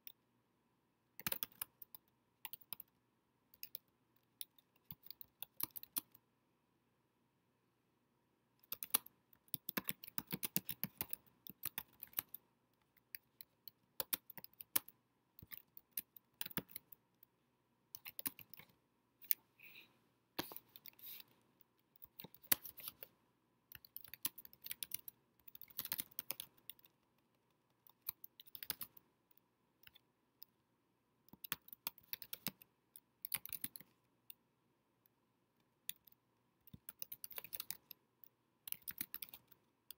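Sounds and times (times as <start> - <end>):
computer keyboard typing: 1.2 - 2.9, 3.6 - 6.2, 8.6 - 17.0, 17.9 - 19.4, 22.0 - 23.1, 23.7 - 29.0, 31.3 - 33.9, 36.7 - 38.0, 38.7 - 39.6.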